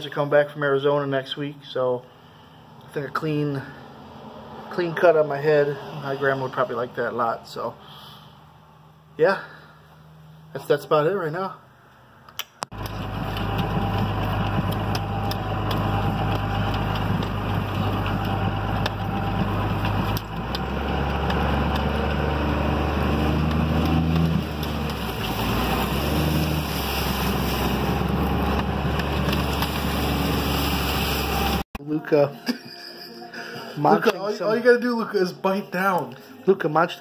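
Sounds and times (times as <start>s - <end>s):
truck engine running: 12.7s - 31.6s.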